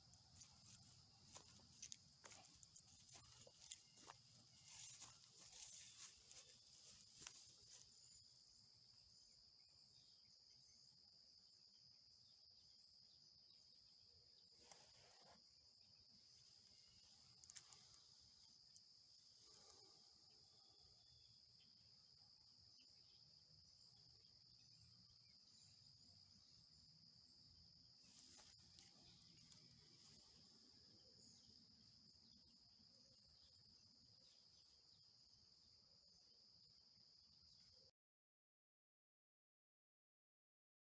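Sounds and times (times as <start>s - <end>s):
crickets chirring: 0.0s - 37.9s.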